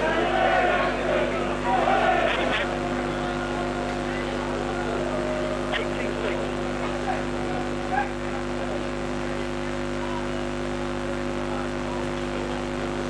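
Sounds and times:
distant shouting voices: 0.0s - 8.5s
steady hum of held tones: 0.0s - 13.0s.

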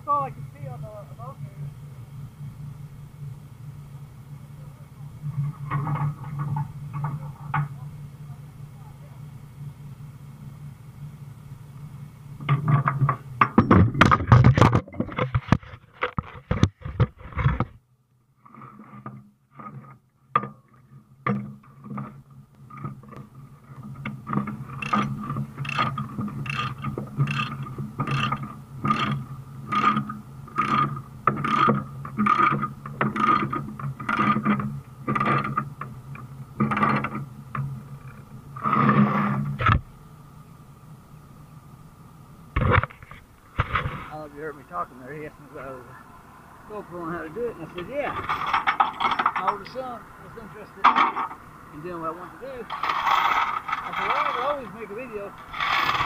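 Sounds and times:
low hum: 0.0s - 56.0s
chain clanking and rattling: 21.8s - 35.6s, 47.9s - 50.0s, 52.7s - 54.7s
ratchet clicking: 24.7s - 34.6s.

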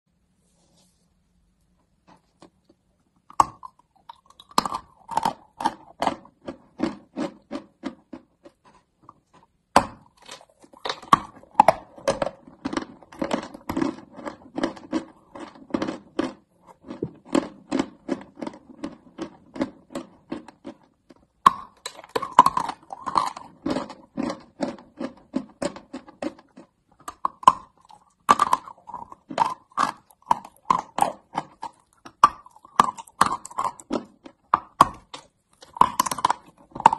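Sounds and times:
crunchy chewing: 3.3s - 36.9s.

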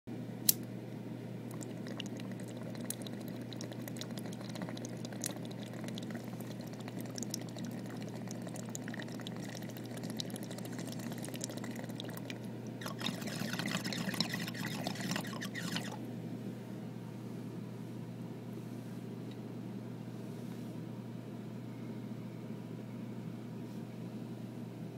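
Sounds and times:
low electrical hum: 0.1s - 24.9s
water trickling and dripping: 1.5s - 16.0s.

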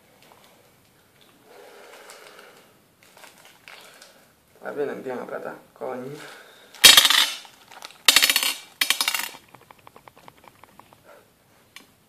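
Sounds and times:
metal parts clattering on glass: 6.8s - 7.4s, 8.0s - 10.9s.

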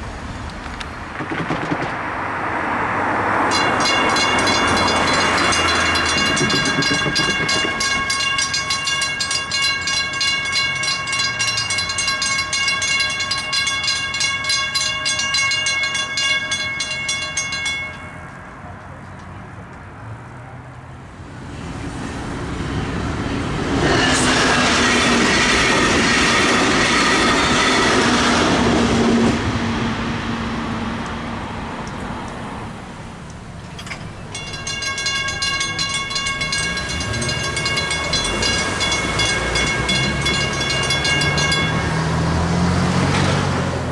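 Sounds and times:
train passing with rushing rumble: 0.0s - 43.9s
railroad crossing bell ringing: 3.4s - 18.7s, 33.6s - 43.3s.

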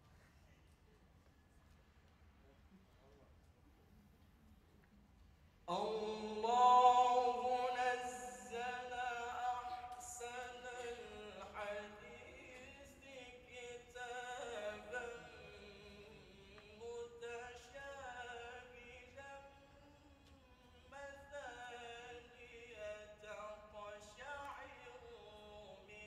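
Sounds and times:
man reciting melodically: 5.7s - 26.0s.

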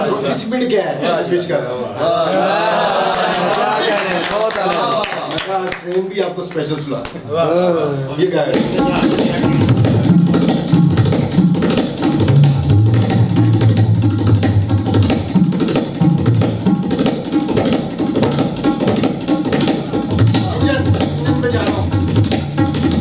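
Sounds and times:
tabla fast strokes: 8.2s - 23.0s.

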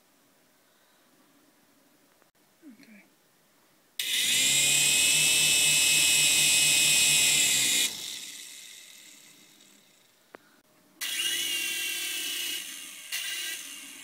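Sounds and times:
toy helicopter motor whining: 4.0s - 10.2s, 11.0s - 14.0s.

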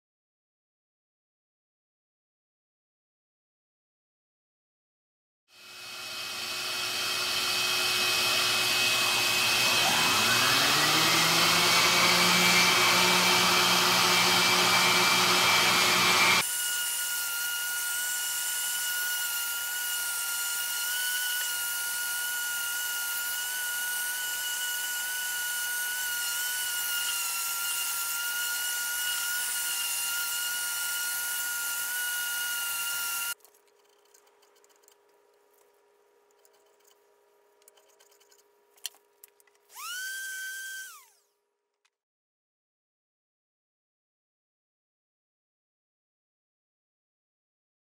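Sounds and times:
vacuum dust extractor whine: 5.6s - 19.7s, 39.7s - 41.1s
orbit sander running: 5.6s - 33.4s, 39.7s - 41.2s.

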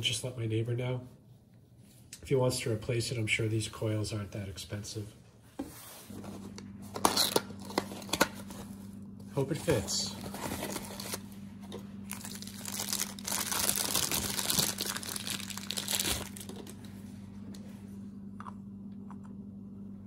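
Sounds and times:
plastic and cardboard packaging rustling: 5.6s - 17.0s.

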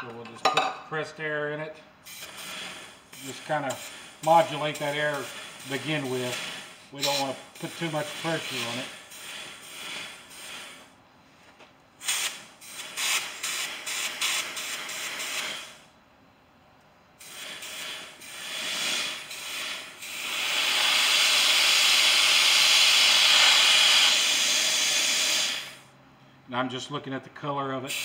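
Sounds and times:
compressed air hissing from nozzle: 2.0s - 11.0s, 12.0s - 15.9s, 17.2s - 26.0s.

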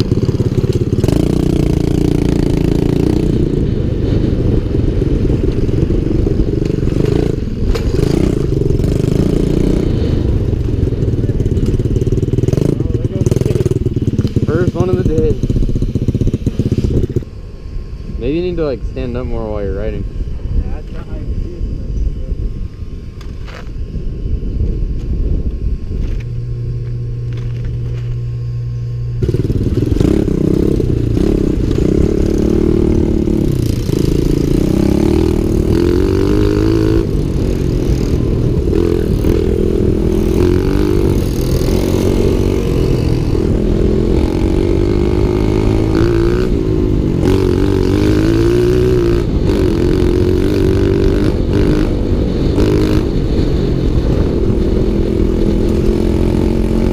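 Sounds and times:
pit bike engine revving: 0.0s - 23.6s, 26.0s - 56.9s
tyres on dirt and gravel: 26.0s - 28.4s.

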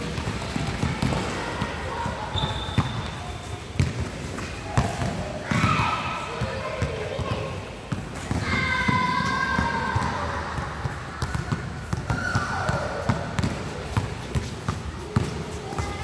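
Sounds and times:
basketball bouncing on hard court: 0.1s - 1.3s, 3.8s - 4.1s, 11.2s - 15.4s
players shouting: 8.3s - 11.1s.

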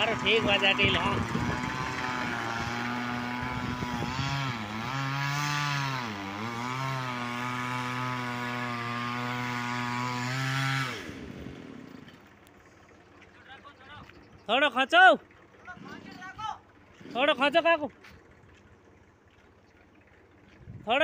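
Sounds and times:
chainsaw cutting at high revs: 0.0s - 12.4s.

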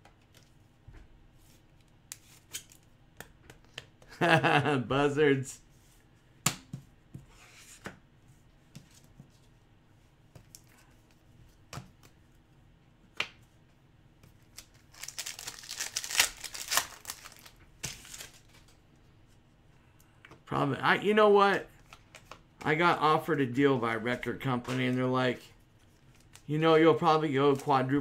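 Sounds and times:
wrapper tearing and crinkling: 14.6s - 18.5s.

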